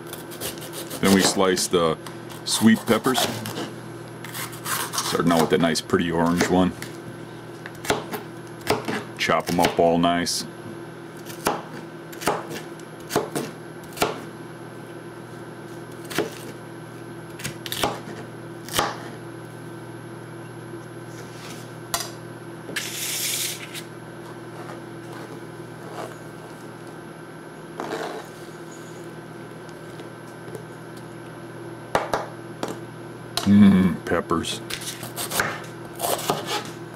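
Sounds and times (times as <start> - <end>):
steady low hum: 0.0 - 36.9
knife chopping on plastic board: 4.3 - 6.9, 7.7 - 9.9, 11.3 - 14.3, 17.4 - 19.1, 34.8 - 36.7.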